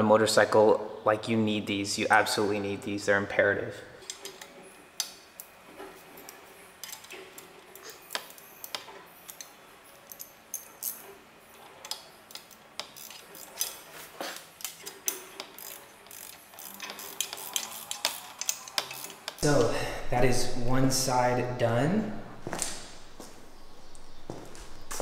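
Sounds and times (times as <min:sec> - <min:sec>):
hand ratchet clicking: 0:11.8 - 0:13.8, 0:14.4 - 0:19.4.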